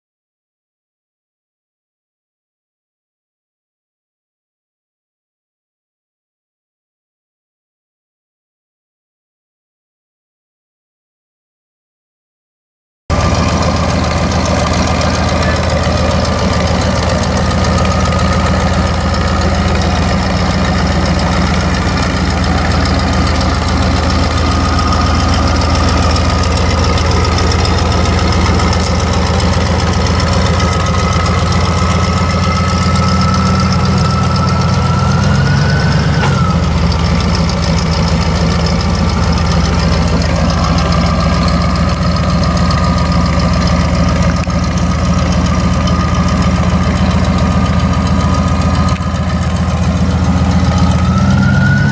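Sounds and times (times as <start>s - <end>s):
forklift engine running: 13.1s - 51.9s
high whine: 13.1s - 51.9s.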